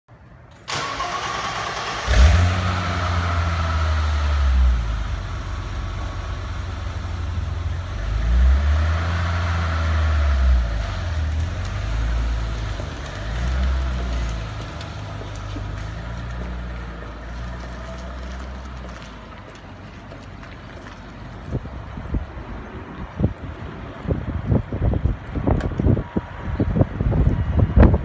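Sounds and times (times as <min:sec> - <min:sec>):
car engine revving: 0:00.7 - 0:19.1
car engine idling: 0:00.7 - 0:22.2.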